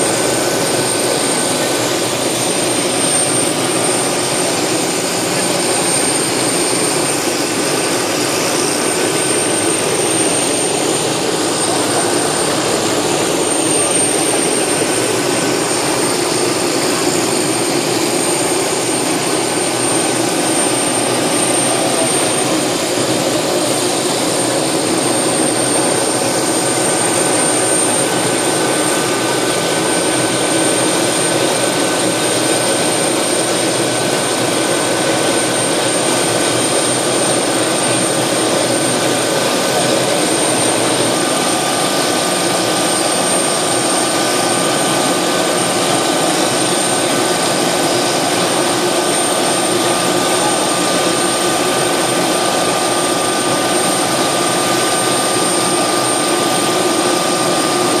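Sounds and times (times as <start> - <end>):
turbine helicopter running: 0.0 - 58.0.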